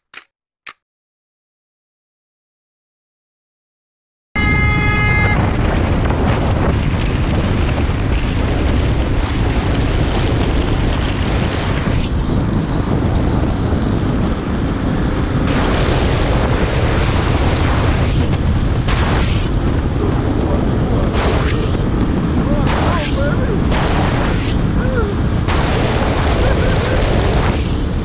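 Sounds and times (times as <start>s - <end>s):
brief high tone: 4.4s - 5.4s
wind rushing over microphone: 4.4s - 28.0s.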